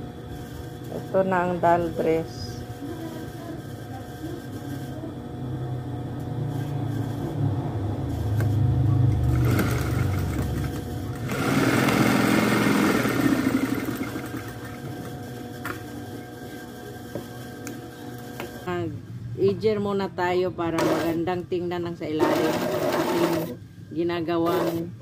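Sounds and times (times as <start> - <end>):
sewing machine stitching: 9.2 - 15.1, 22.2 - 23.6, 24.4 - 24.9.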